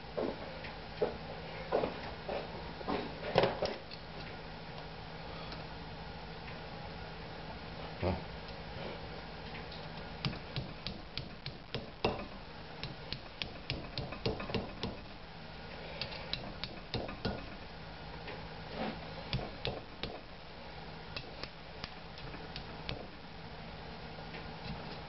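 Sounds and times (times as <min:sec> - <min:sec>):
hammer tapping metal punch: 0:10.2 - 0:15.2, 0:16.0 - 0:17.6, 0:19.3 - 0:20.3, 0:21.2 - 0:23.1.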